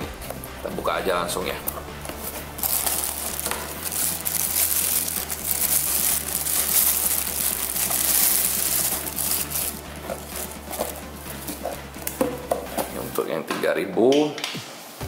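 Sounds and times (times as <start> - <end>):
plastic bag crinkling: 2.2 - 12.3.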